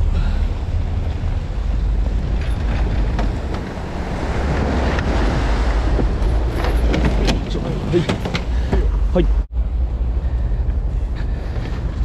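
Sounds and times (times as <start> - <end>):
boat engine rumble: 0.0 - 12.0
wind buffeting microphone: 0.0 - 12.0
surf washing against rocks: 1.2 - 8.6.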